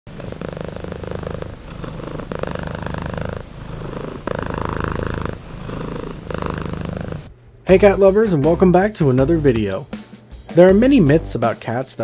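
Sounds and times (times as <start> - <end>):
cat purring: 0.1 - 7.9.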